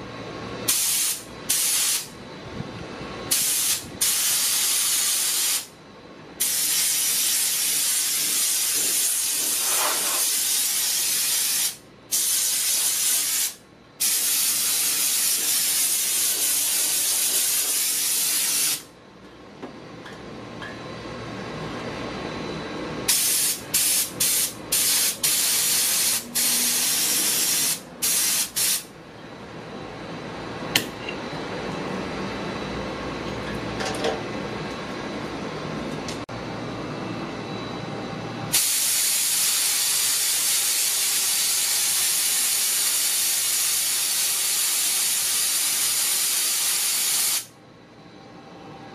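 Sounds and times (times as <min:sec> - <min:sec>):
short air blasts: 0:00.7 - 0:02.1, 0:03.3 - 0:05.7, 0:06.4 - 0:18.9, 0:23.1 - 0:28.9, 0:38.5 - 0:47.5
low machine hum: 0:02.1 - 0:04.0, 0:18.9 - 0:25.6, 0:28.9 - 0:38.6
compressed air and water hissing: 0:06.4 - 0:18.9, 0:23.1 - 0:28.9.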